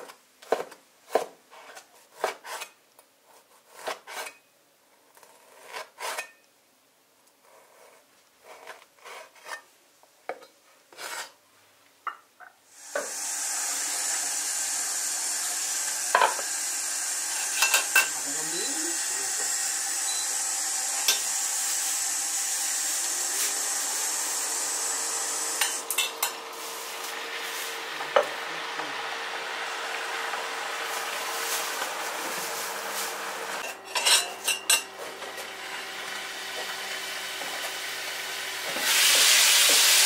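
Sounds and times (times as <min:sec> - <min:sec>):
food sizzling in a wok: 0:12.7 - 0:40.0.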